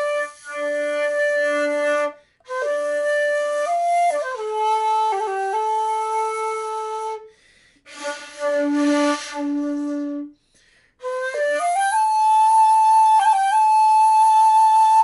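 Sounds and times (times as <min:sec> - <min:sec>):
shakuhachi flute phrases: 0:00.0 - 0:07.3, 0:07.9 - 0:10.3.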